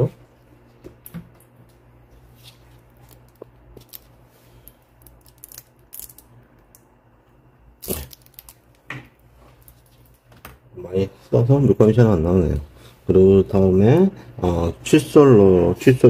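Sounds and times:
paint tube clicking and crinkling: 2.6 - 6.9, 7.8 - 10.3.

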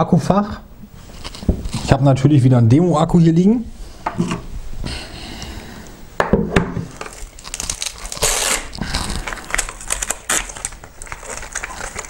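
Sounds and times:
hands rustling and knocking: 1.2 - 1.8
short ripping rasp: 8.0 - 9.2.

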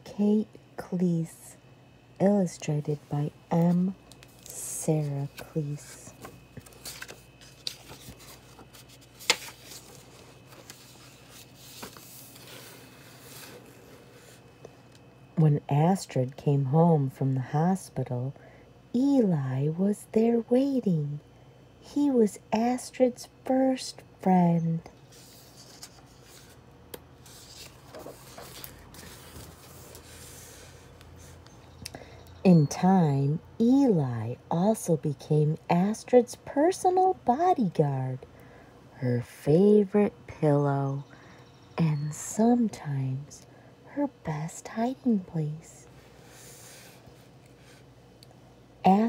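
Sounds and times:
book pages turning: 3.6 - 15.0, 25.1 - 26.6, 27.2 - 31.4.

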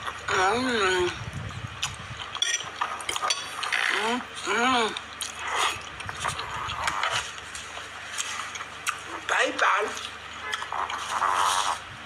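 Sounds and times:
person chewing and slurping: 1.8 - 9.3, 9.9 - 12.0.

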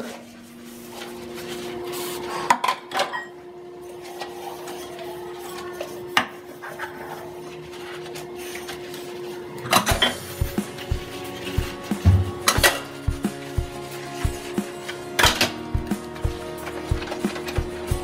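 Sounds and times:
sponge scrubbing plastic cups: 4.0 - 18.0
steady hum: 7.5 - 18.0.

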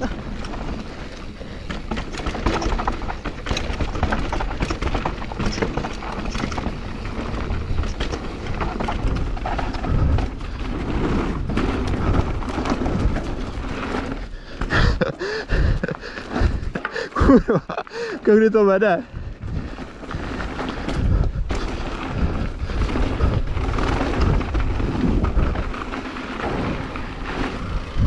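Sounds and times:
bike rattling and knocking: 0.0 - 28.0
bike tyres rumbling on gravel: 0.0 - 28.0
wind on microphone: 19.2 - 25.8.

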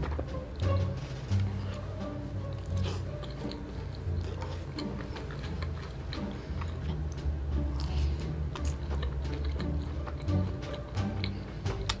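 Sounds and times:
background music with bass line: 0.0 - 12.0
wet chewing and mouth clicks: 2.4 - 12.0.

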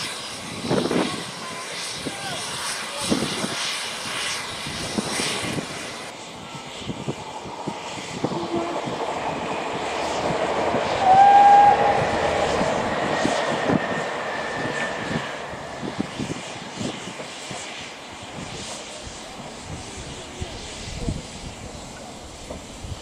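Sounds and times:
steam rushing: 0.0 - 23.0
steam whistle blast: 8.2 - 8.9, 10.9 - 13.8.

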